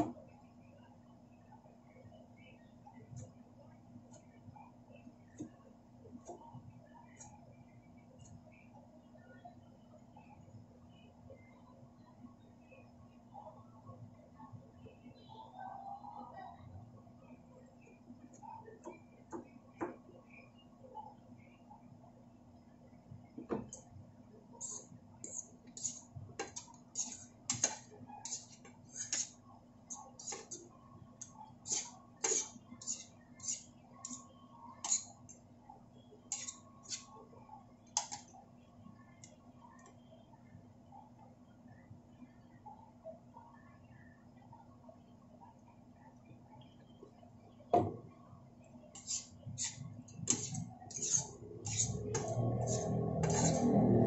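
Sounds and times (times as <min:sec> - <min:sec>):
knife slicing onion: 0:24.6 - 0:29.4, 0:31.6 - 0:34.2, 0:49.0 - 0:53.7
utensils scraping a frying pan: 0:24.6 - 0:29.4, 0:30.2 - 0:30.6, 0:31.6 - 0:34.2, 0:34.8 - 0:35.2, 0:36.3 - 0:37.1, 0:49.0 - 0:54.0.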